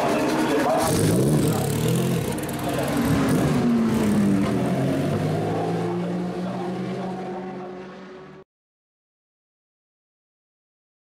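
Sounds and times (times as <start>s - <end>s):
race car engine pulling away: 0.0s - 8.4s.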